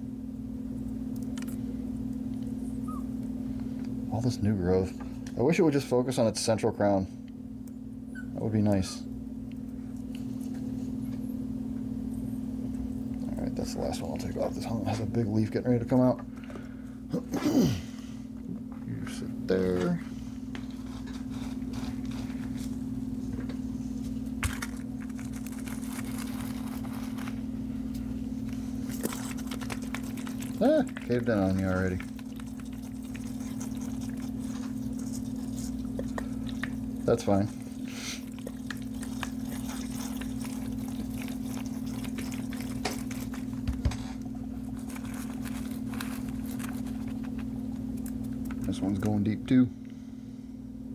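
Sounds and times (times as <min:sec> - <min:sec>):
steady low hum: 0:00.0 - 0:50.9
potting mix rustling: 0:13.2 - 0:16.8, 0:18.6 - 0:49.7
soil crackling under fingers: 0:24.4 - 0:43.7
water trickling into soil: 0:29.0 - 0:43.6.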